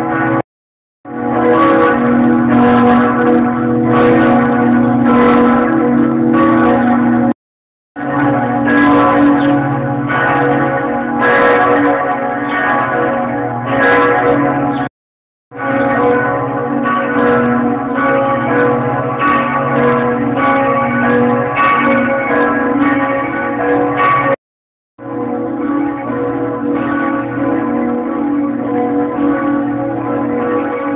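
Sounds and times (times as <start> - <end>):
church bells pealing: 0.0 - 0.4, 1.1 - 7.4, 8.0 - 14.9, 15.5 - 24.4, 25.0 - 30.9.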